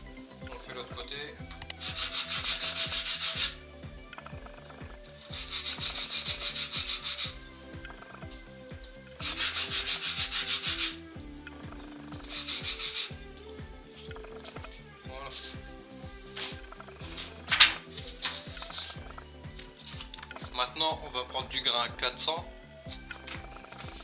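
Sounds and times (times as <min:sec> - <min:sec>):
acrylic rubbing on sandpaper: 0:01.8 - 0:03.6, 0:05.1 - 0:07.4, 0:09.2 - 0:11.0, 0:12.2 - 0:13.1.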